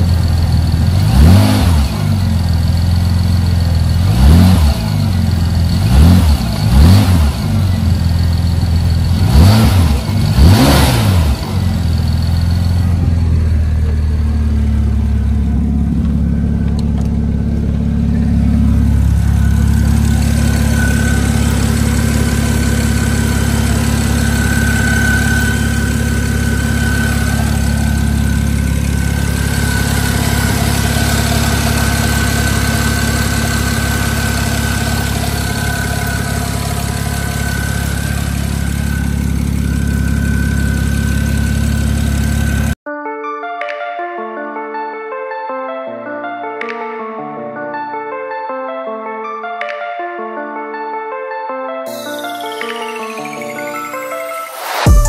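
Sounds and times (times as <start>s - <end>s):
car engine idling: 0.0s - 42.8s
car engine revving: 0.0s - 42.8s
thin high whine: 18.0s - 30.6s.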